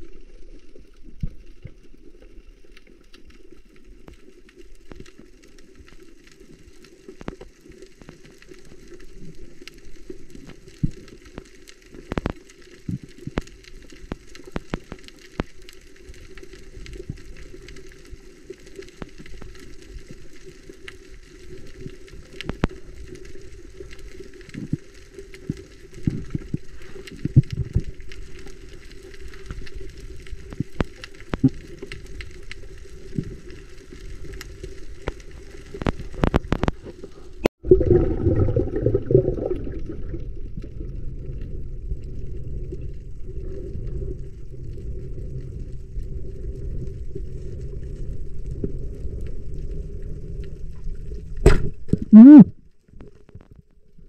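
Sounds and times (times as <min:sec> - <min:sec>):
sharp clicks and crackles: 0:00.0 - 0:37.5.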